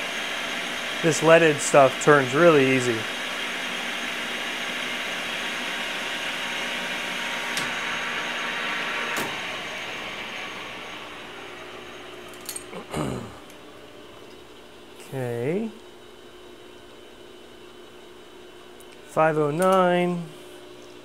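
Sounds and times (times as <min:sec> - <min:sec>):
metal lathe whirring: 0:00.0 - 0:15.0.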